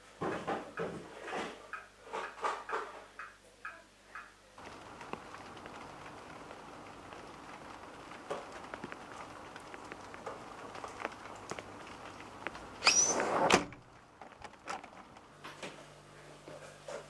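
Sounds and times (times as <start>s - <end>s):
fridge door squeak and thud: 12.8s - 13.8s.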